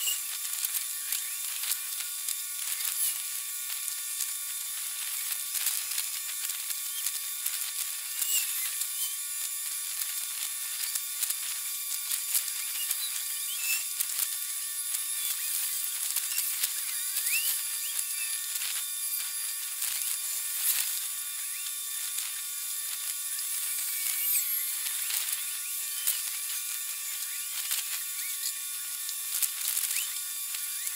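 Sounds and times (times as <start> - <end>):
high-pitched hiss and electronic buzz: 0.0 - 30.9
quick clicks and chirps: 16.2 - 18.4.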